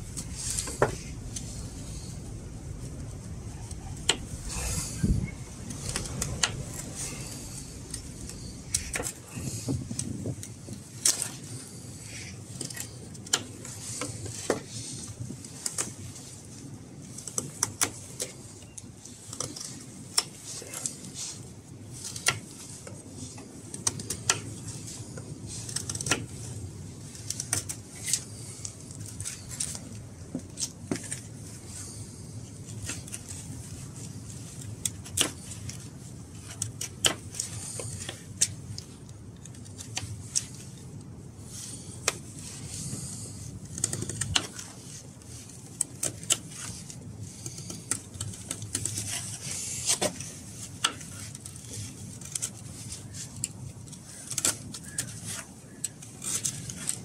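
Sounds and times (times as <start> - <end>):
knife carving green wood: 0.0 - 57.0.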